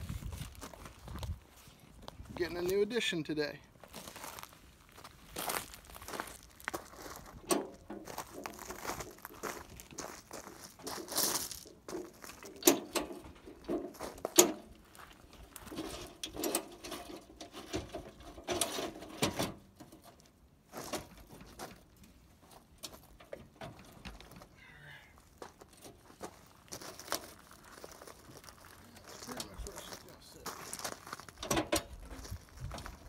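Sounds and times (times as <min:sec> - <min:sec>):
metal steps knocking and clanking: 0:07.3 - 0:08.8, 0:11.7 - 0:14.8, 0:15.6 - 0:20.1, 0:31.4 - 0:32.0.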